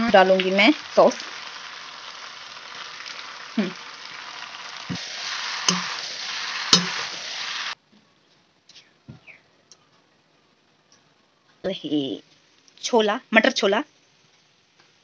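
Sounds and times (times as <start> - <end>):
food sizzling in hot oil: 0.0 - 7.8.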